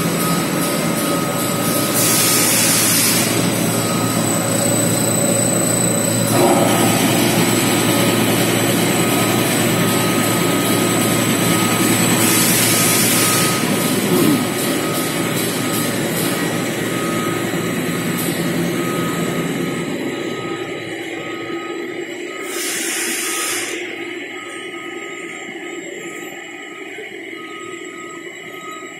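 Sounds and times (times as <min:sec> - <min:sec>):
production line machinery running: 0:00.0 - 0:28.7.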